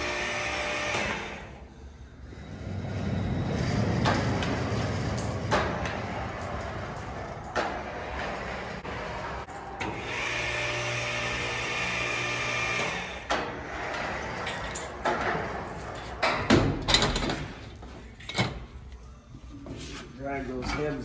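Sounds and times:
electric chain hoist motor: 0:08.1 - 0:13.3
metallic clanks and knocks: 0:14.4 - 0:18.7.

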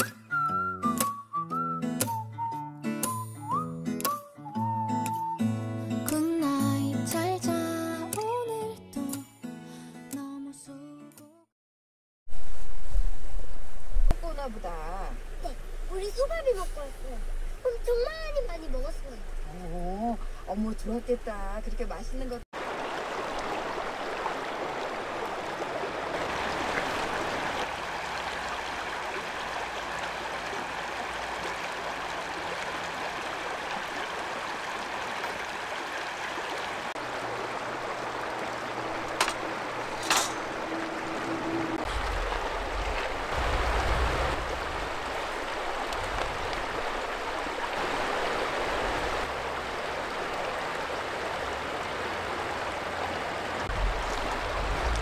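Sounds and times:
stream flowing over rocks: 0:22.6 - 0:55.0
low rumble: 0:53.7 - 0:55.0.

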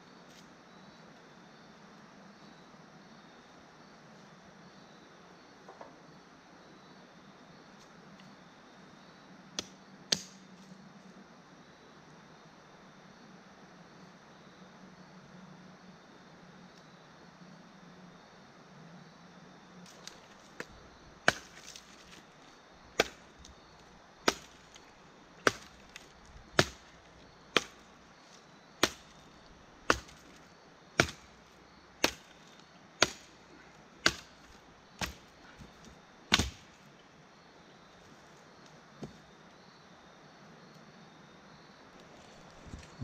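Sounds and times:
firewood being chopped: 0:09.6 - 0:10.7, 0:19.8 - 0:36.8, 0:39.0 - 0:39.2.

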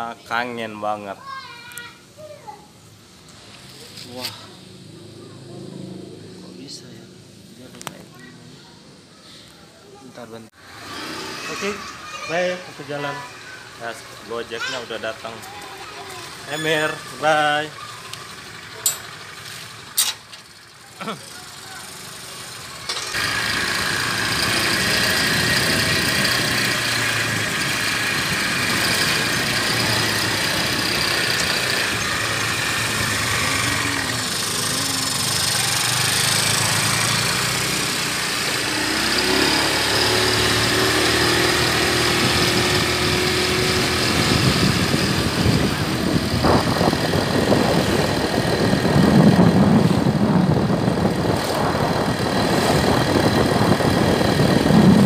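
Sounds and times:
road noise: 0:00.0 - 0:55.0
motorcycle engine running: 0:03.6 - 0:07.8, 0:17.7 - 0:55.0
wind on microphone: 0:42.1 - 0:55.0.

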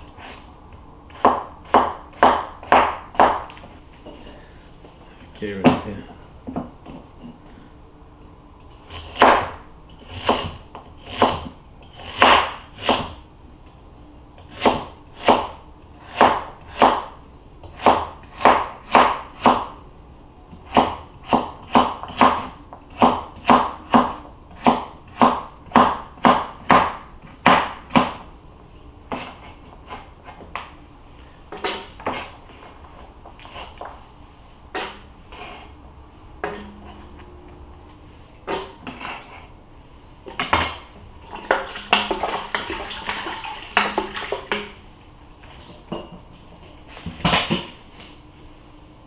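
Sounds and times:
knife chopping carrots on a board: 0:01.1 - 0:03.5, 0:08.9 - 0:13.2, 0:14.4 - 0:19.7, 0:20.6 - 0:28.2.

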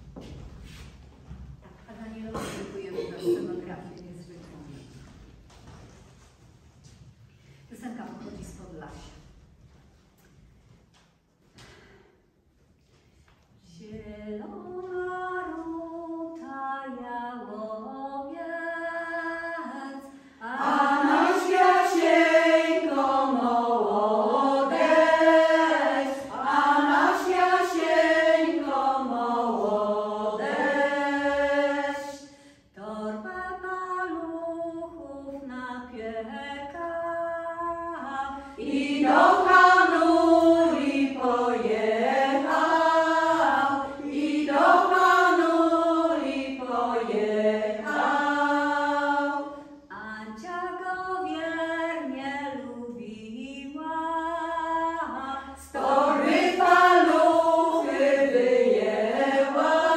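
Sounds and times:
women's choir singing folk song: 0:13.6 - 0:59.9.

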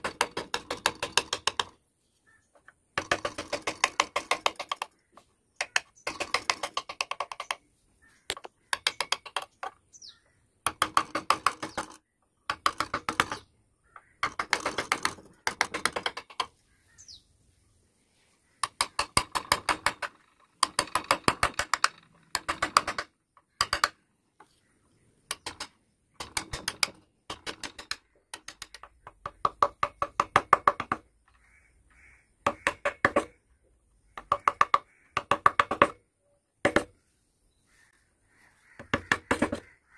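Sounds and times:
chisel ticking into wood: 0:32.4 - 0:33.4, 0:34.1 - 0:36.0.

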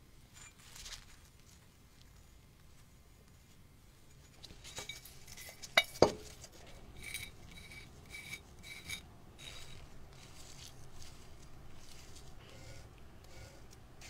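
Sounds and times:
squeaky rubbing strokes: 0:06.7 - 0:14.0.

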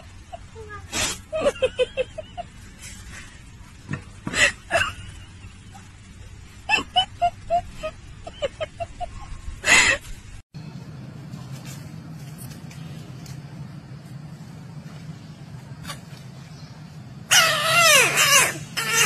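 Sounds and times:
person laughing: 0:00.0 - 0:02.8, 0:06.6 - 0:10.0.

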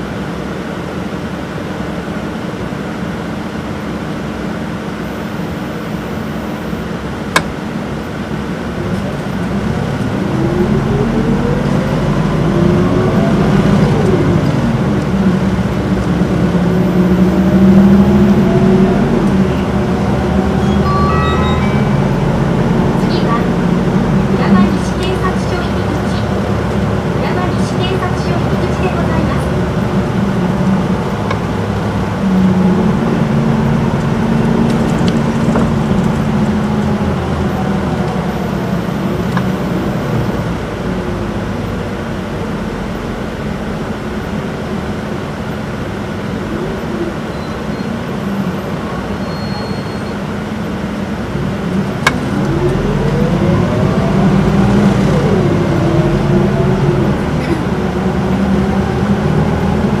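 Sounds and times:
bus diesel engine running: 0:00.0 - 1:00.0
rising and falling whine: 0:09.8 - 0:26.9, 0:51.4 - 1:00.0.

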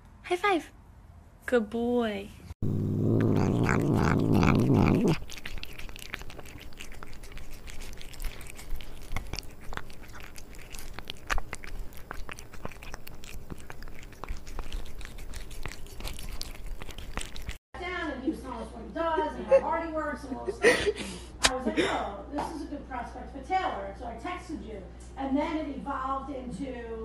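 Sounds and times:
cat chewing and crunching: 0:02.6 - 0:17.6.

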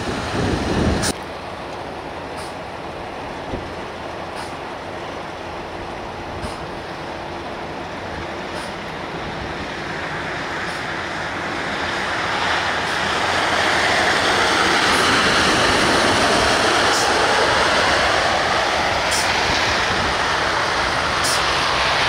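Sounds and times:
truck engine: 0:00.0 - 0:22.0
plow blade scraping snow: 0:08.4 - 0:22.0.

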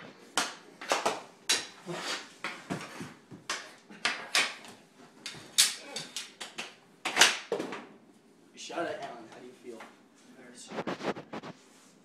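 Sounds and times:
hockey sticks and ball clacking: 0:00.3 - 0:07.6.

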